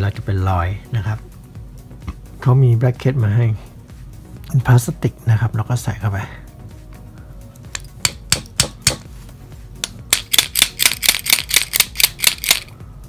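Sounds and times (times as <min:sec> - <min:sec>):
plastic and metal parts clicking: 0:09.8 - 0:12.7
rapid rattle of clicks: 0:10.1 - 0:12.7.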